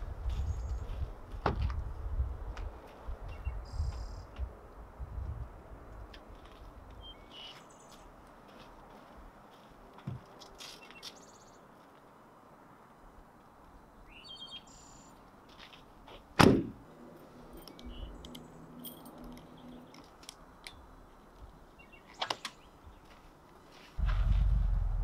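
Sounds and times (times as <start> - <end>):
birds chirping: 3.3 - 4.4, 7.0 - 8.1, 14.0 - 15.2, 17.5 - 23.2
low steady rumble: 24.0 - 25.0.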